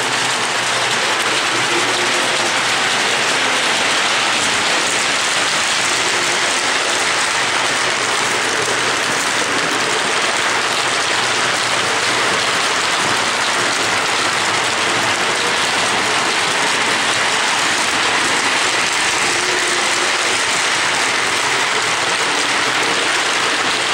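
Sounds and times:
model trains whirring on rails: 0.0 - 23.9.

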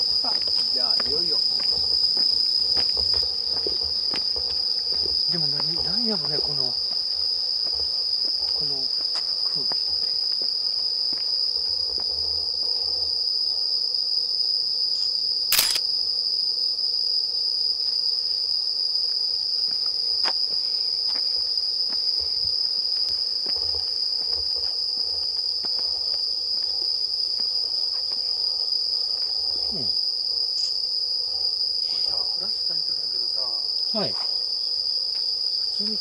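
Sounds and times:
night insects chorus: 0.0 - 36.0
sharp click: 15.5 - 15.8.

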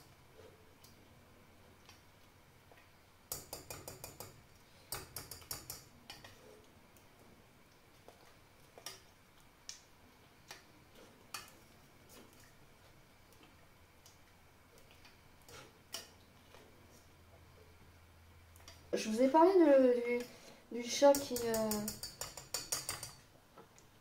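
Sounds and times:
utensil clicking against saucepan: 21.1 - 23.2.

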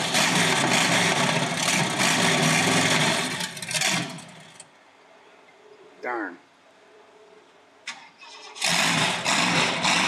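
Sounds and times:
rough engine running loud: 0.0 - 4.6, 8.6 - 10.0.

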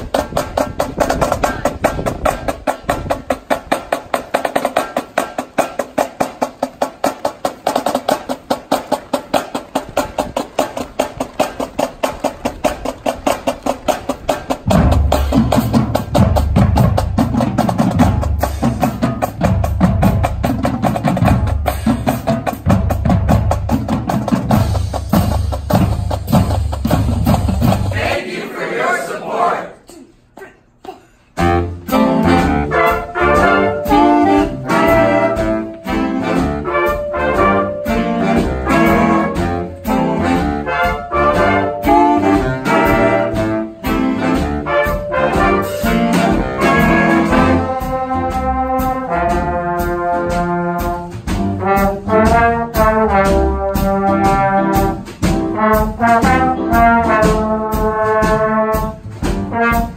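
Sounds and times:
horns holding long chords: 31.4 - 59.9
jazz big band playing: 31.4 - 59.9.

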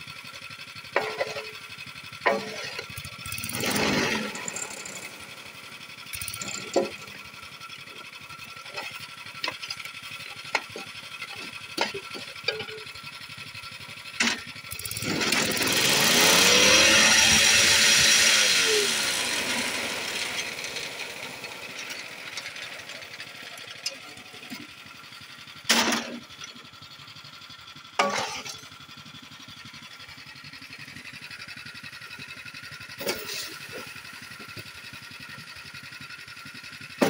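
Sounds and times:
knocks and scrapes of concrete mix: 1.0 - 1.6, 2.3 - 3.1, 8.0 - 13.0, 28.0 - 28.7, 33.0 - 34.8
machine motor running: 2.2 - 7.3, 14.2 - 24.7.

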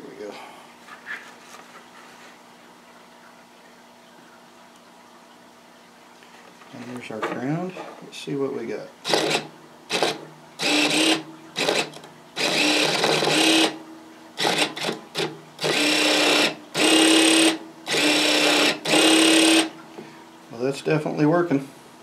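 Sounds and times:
electric motor whining: 9.1 - 13.8, 15.6 - 19.7.

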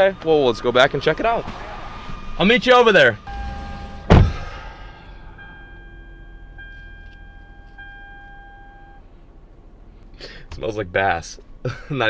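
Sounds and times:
sharp thump: 3.3 - 4.9
chime-like ringing tone: 3.3 - 9.0.

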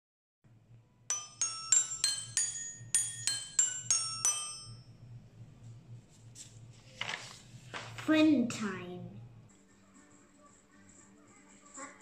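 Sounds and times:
faint low hum: 0.5 - 12.0
bell-like chime jingle: 1.1 - 4.9.

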